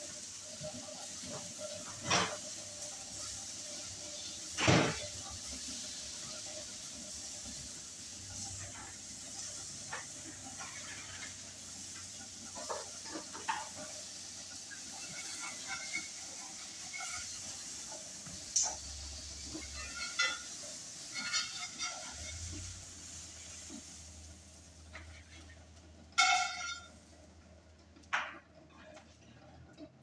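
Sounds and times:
eggs sizzling in skillet: 0:00.0 - 0:28.6
spatula scraping pan: 0:08.6 - 0:24.0.

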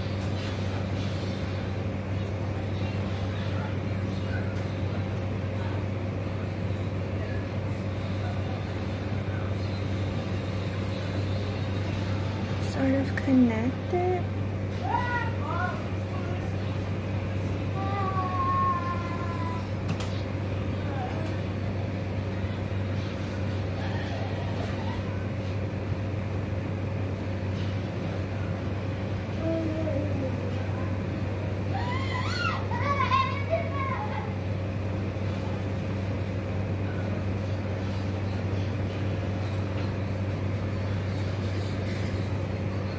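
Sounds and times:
steady low hum: 0:00.0 - 0:42.9.

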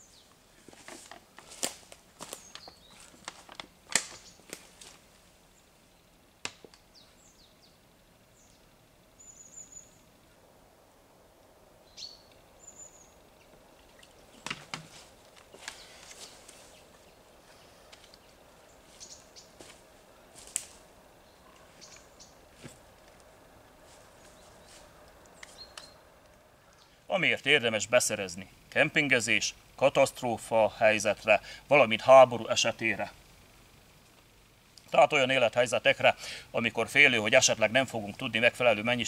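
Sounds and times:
footsteps on damp forest floor: 0:00.5 - 0:05.2, 0:14.4 - 0:17.0, 0:18.7 - 0:25.8
high bird chirps: 0:11.9 - 0:13.5.

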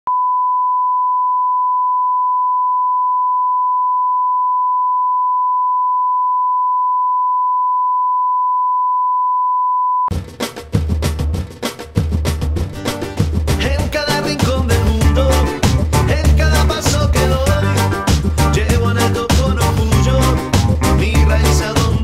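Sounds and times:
percussive music: 0:10.1 - 0:22.0.

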